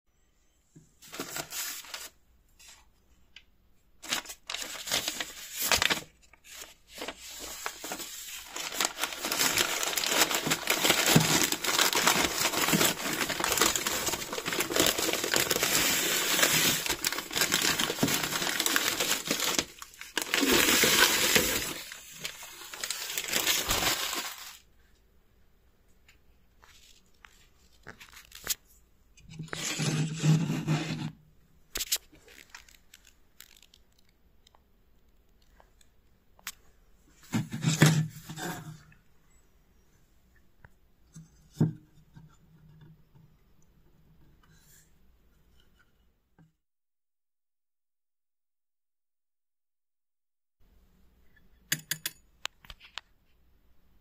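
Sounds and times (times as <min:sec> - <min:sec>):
newspaper crinkling and crumpling: 0:01.0 - 0:02.2, 0:04.0 - 0:24.7, 0:26.6 - 0:28.6, 0:31.8 - 0:34.1.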